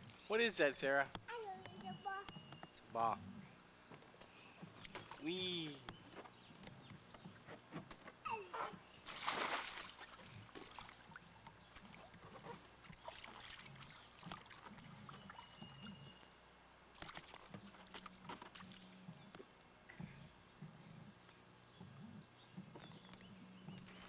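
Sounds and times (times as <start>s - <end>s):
water splashing in wading pool: 9.0s - 16.0s, 16.9s - 19.0s.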